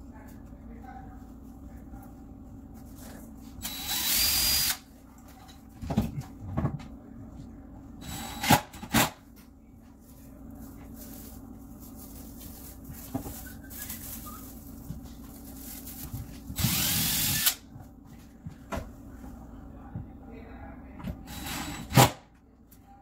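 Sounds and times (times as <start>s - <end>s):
cordless drill whirring: 3.6s - 4.8s, 16.6s - 17.6s, 21.3s - 22.0s.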